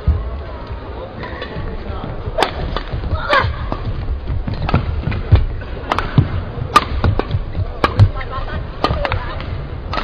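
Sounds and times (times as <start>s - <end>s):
rackets striking shuttlecock: 2.4s - 3.9s, 4.5s - 10.0s.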